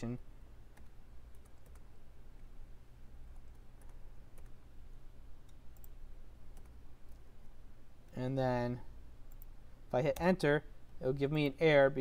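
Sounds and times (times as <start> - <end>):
low electrical hum: 0.0 - 12.0
keyboard and mouse clicks: 0.7 - 1.9, 3.3 - 4.6, 5.4 - 7.3.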